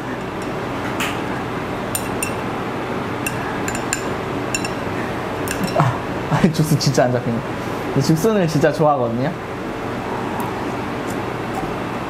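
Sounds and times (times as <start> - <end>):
chopsticks clicking on plate: 3.3 - 4.8.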